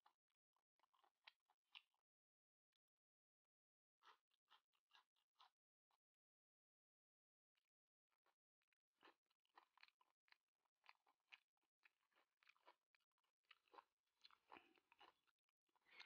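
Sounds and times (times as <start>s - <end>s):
chewing and crunching: 0.0s - 2.1s, 4.0s - 6.1s, 7.6s - 16.0s
wet mouth clicks: 9.0s - 16.0s.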